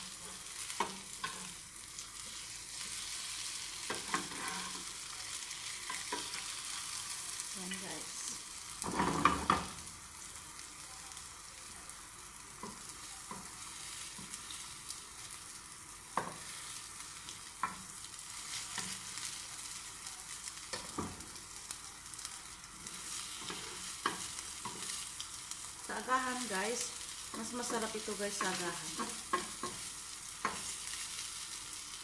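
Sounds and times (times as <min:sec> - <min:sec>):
bread sizzling in butter: 0:00.0 - 0:32.0
spatula scraping pan: 0:03.8 - 0:05.0.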